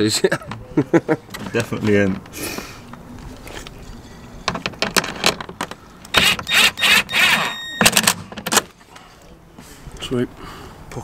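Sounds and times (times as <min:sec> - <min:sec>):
cordless drill whirring: 0:06.1 - 0:07.9.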